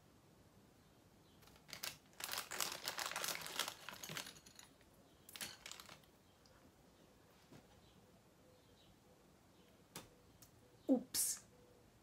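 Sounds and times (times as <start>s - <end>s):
plastic packaging crinkling: 1.4s - 4.7s, 5.3s - 6.1s.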